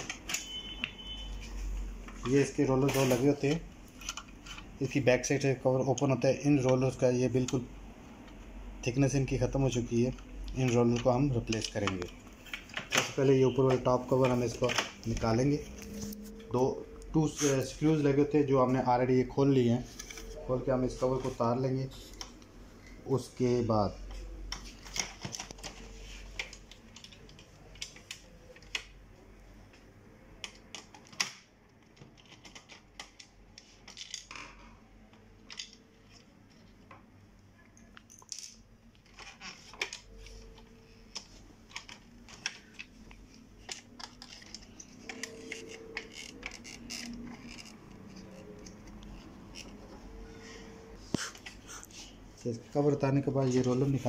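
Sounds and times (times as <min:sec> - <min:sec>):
plastic parts clicking and knocking: 0:02.1 - 0:04.8, 0:10.1 - 0:15.2, 0:30.4 - 0:37.1, 0:38.0 - 0:49.8.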